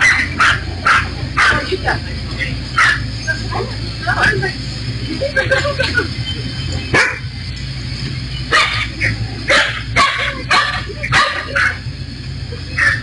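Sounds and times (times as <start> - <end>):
dog barking: 0.0 - 1.7, 2.8 - 3.1, 6.9 - 7.3, 8.5 - 11.9.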